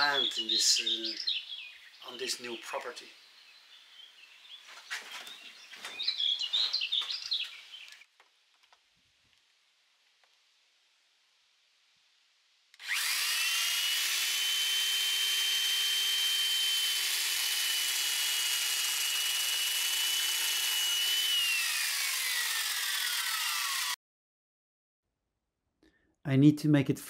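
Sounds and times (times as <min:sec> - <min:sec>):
electric chainsaw cutting wood: 0:12.8 - 0:24.0.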